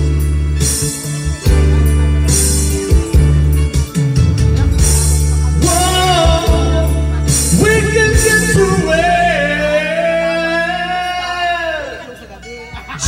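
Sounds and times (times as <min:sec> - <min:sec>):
backing music: 0:00.0 - 0:13.0
man singing into a microphone: 0:05.4 - 0:12.2.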